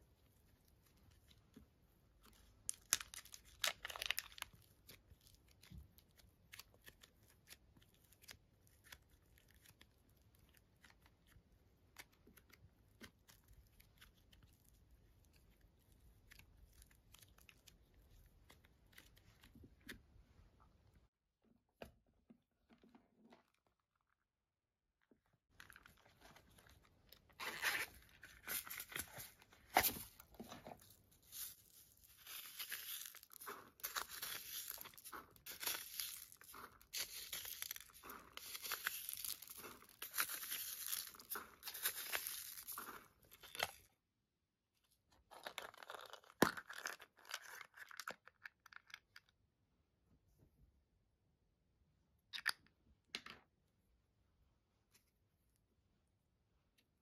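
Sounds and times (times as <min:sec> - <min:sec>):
spoon scooping foam beads: 0:25.7 - 0:43.9.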